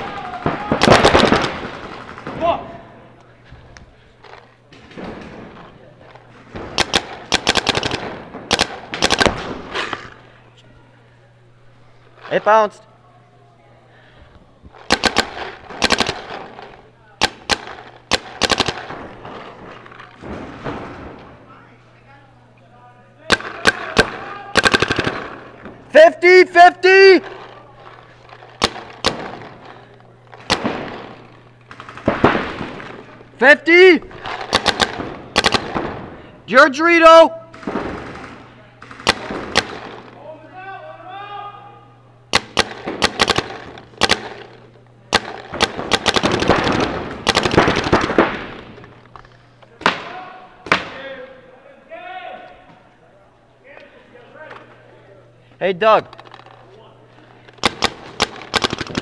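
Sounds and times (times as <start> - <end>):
faint low hum: 0.0 - 59.0
paintball markers firing: 6.5 - 10.2, 14.8 - 20.8, 23.3 - 25.7, 27.2 - 33.2, 34.1 - 36.1, 37.5 - 40.2, 42.3 - 51.0, 57.5 - 59.0
paintball marker shots: 6.6 - 10.1, 14.8 - 16.6, 17.2 - 19.0, 34.2 - 36.1, 42.3 - 48.8.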